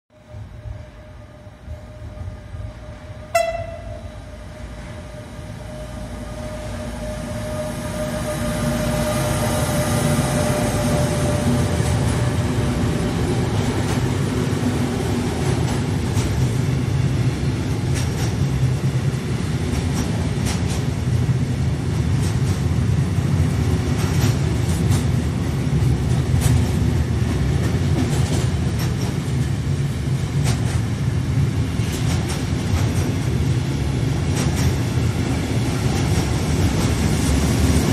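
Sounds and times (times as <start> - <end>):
freight train rumbling past: 0.1 - 37.9
train horn blast: 3.3 - 11.8.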